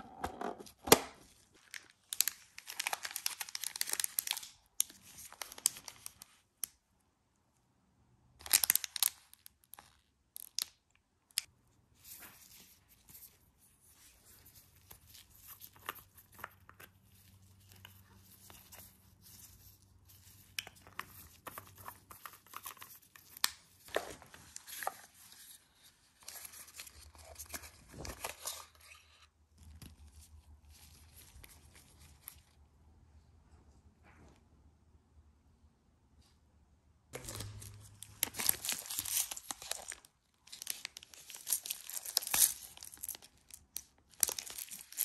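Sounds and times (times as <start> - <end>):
plastic packaging crinkling: 1.2 - 6.4, 8.4 - 10.7, 37.2 - 45.0.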